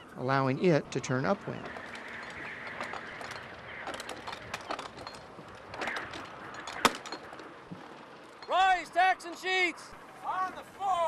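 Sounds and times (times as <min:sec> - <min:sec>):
sails flapping in wind: 0:00.0 - 0:11.0
rigging rattling: 0:01.0 - 0:08.8.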